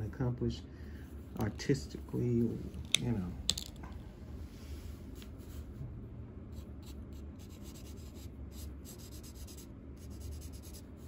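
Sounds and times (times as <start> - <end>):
steady low hum: 0.0 - 11.0
marker rubbing on paper: 6.6 - 11.0.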